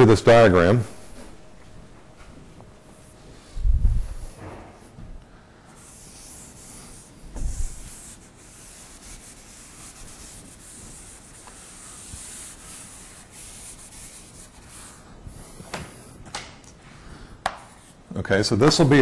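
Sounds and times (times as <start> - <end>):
pen scratching on surface: 5.8 - 14.9.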